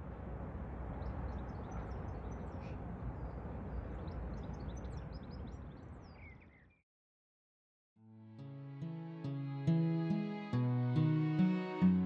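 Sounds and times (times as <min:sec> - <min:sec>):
small birds chirping: 0:00.9 - 0:06.8.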